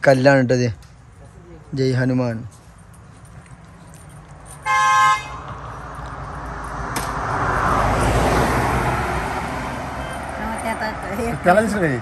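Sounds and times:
vehicle horn toot: 4.6s - 5.4s
vehicle passing by: 5.2s - 12.0s.

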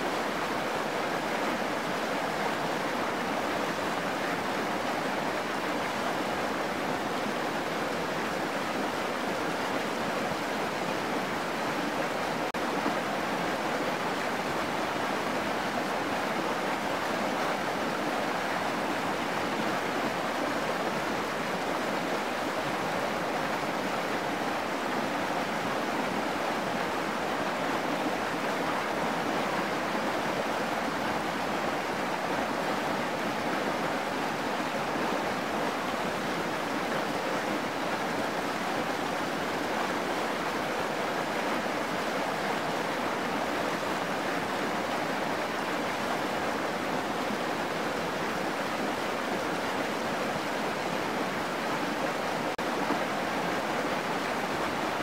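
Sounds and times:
stream babbling over rocks: 0.0s - 55.0s.

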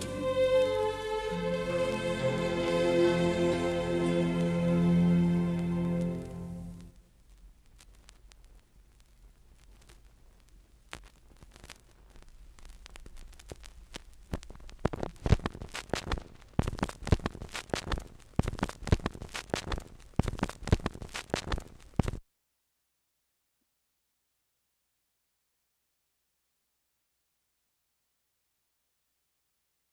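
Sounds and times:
vinyl record crackles and pops: 1.9s - 22.2s.

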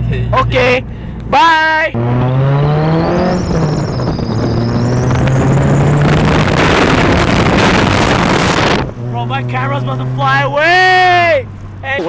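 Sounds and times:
car engine accelerating: 0.0s - 12.0s
wind rushing on microphone: 3.2s - 9.0s.

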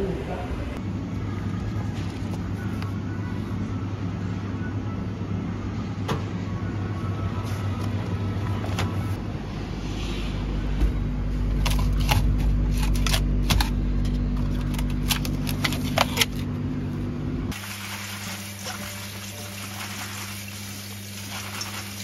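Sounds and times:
refrigerated display cases humming: 0.0s - 22.0s
tap water running into colander: 17.5s - 22.0s.

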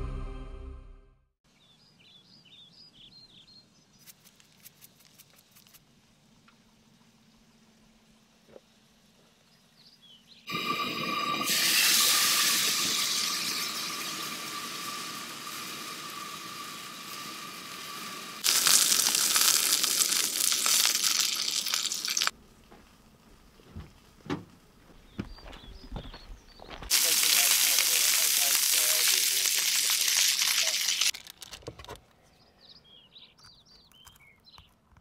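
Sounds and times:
stove hiss with high whine: 10.5s - 21.1s, 26.9s - 31.1s
food sizzling in a skillet: 10.5s - 22.3s, 26.9s - 31.1s.

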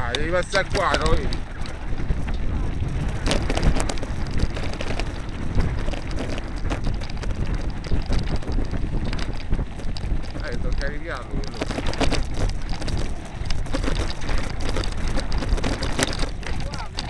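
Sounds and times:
bike rattling and knocking: 0.0s - 17.0s
bike tyres crunching on gravel: 0.0s - 17.0s
wind rumbling on microphone: 0.0s - 17.0s.

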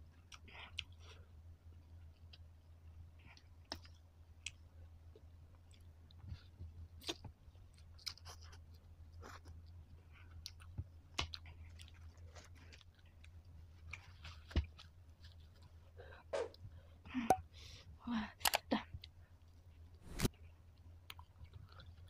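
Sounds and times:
person chewing noodles: 0.1s - 15.9s, 21.0s - 22.0s.

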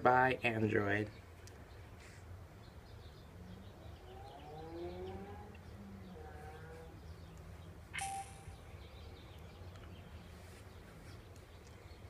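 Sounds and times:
phone startup chime: 8.0s - 8.7s
short sharp sound with tone: 8.0s - 8.7s.

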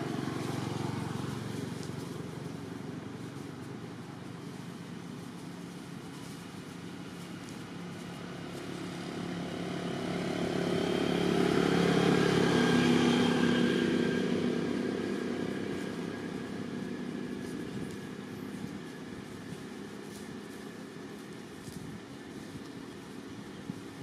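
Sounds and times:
engine passing by: 0.0s - 24.0s.

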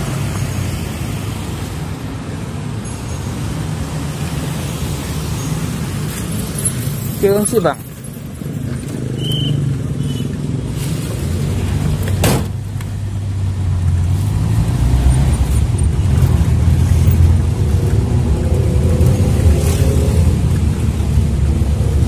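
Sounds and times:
minibus engine accelerating: 8.2s - 22.0s.

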